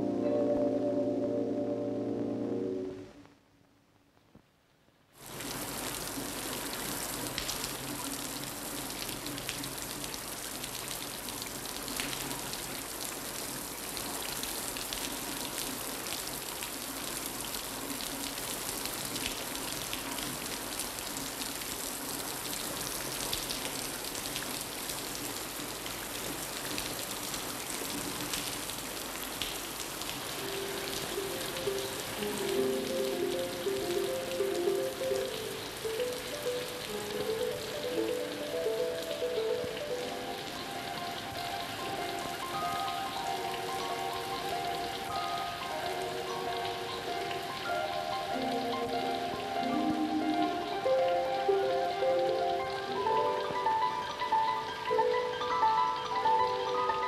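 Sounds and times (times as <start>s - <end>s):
faint low steady tones: 0.0s - 3.7s
steady rain falling: 0.0s - 57.0s.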